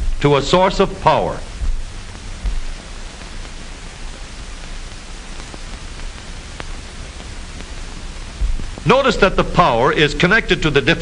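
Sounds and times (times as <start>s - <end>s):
film soundtrack hiss: 0.0s - 11.0s
low hum: 0.0s - 11.0s
faint clicks: 2.1s - 8.9s.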